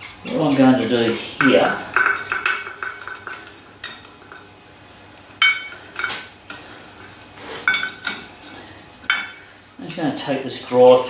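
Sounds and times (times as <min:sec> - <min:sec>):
metallic clinks and knocks: 0:01.1 - 0:04.6, 0:05.2 - 0:09.8.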